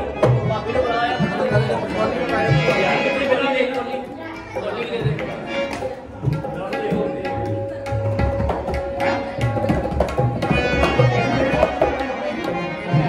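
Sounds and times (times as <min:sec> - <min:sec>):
hand drums playing rhythm: 0:00.0 - 0:13.0.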